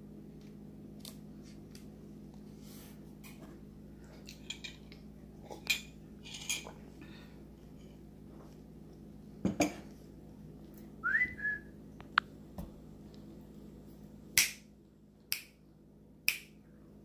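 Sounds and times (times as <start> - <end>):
bird whistle rising: 11.0 - 11.7.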